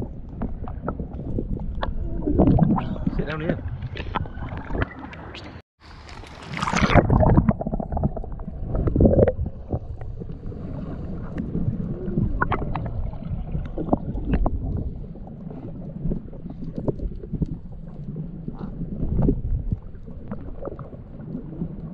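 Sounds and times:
gurgling bubbles: 0:00.0 - 0:05.2, 0:06.3 - 0:21.9
muffled underwater sloshing: 0:00.0 - 0:21.9
rushing splash: 0:05.8 - 0:09.8
small underwater clicks: 0:12.4 - 0:21.9.

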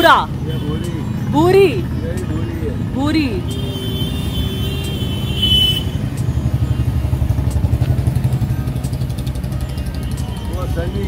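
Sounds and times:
motorcycle engine running: 0:02.4 - 0:11.0.

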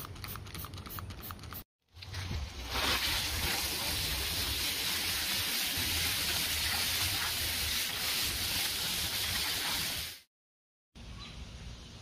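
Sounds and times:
hose water spray hissing: 0:02.7 - 0:10.3.

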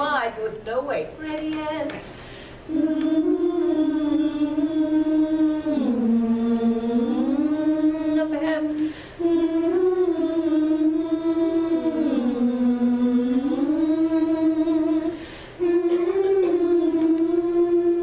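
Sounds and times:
group breath: 0:02.0 - 0:02.7, 0:08.8 - 0:09.2, 0:15.1 - 0:15.6
chorus singing in unison: 0:02.7 - 0:18.0.

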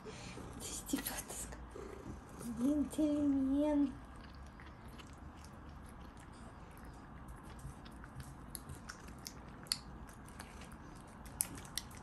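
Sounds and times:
cats crunching treats: 0:03.2 - 0:12.0.

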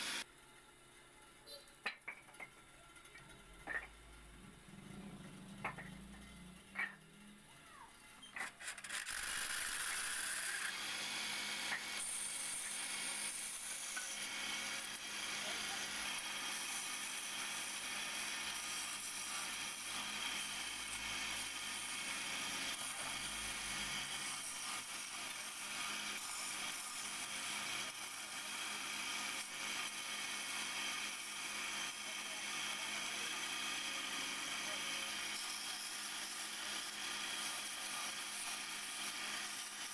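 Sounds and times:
wood lathe chisel shaving wood: 0:00.0 - 0:00.2, 0:08.5 - 0:39.9.

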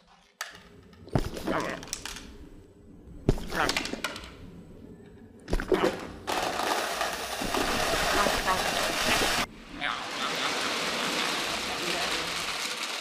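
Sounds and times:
dry kibble pouring from feeder: 0:10.2 - 0:13.0.

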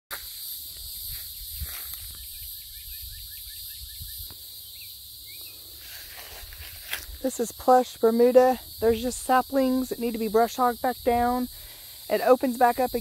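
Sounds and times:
footsteps through grass: 0:00.1 - 0:02.5, 0:05.4 - 0:07.2
insects chorus: 0:00.1 - 0:13.0
bird singing rising notes: 0:02.1 - 0:05.6.

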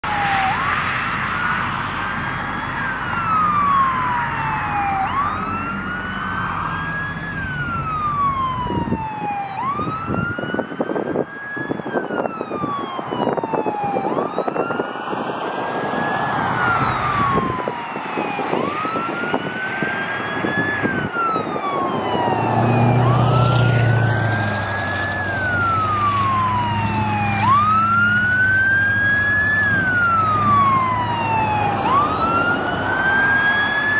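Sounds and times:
emergency siren wailing: 0:00.0 - 0:33.9
low engine hum: 0:20.0 - 0:33.9.

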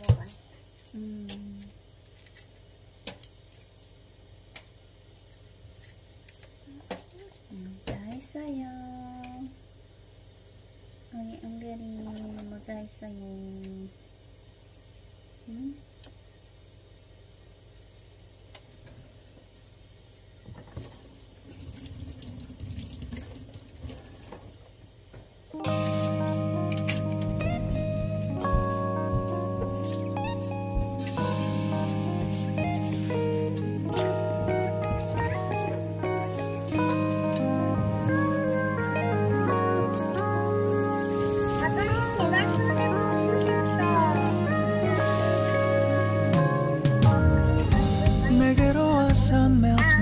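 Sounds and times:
egg shell cracking: 0:00.8 - 0:07.1
tap water running into sink: 0:20.7 - 0:24.4.

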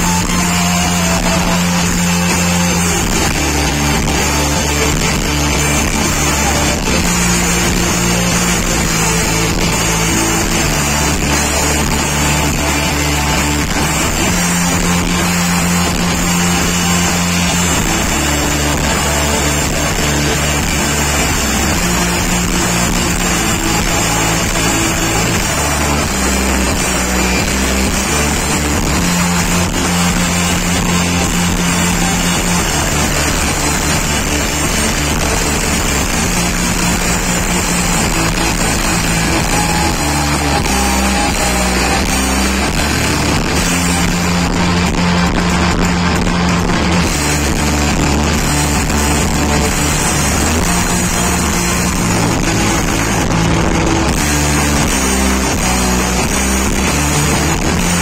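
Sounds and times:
bass guitar: 0:00.0 - 0:58.0
drum kit: 0:00.0 - 0:58.0
electric guitars: 0:00.0 - 0:58.0.

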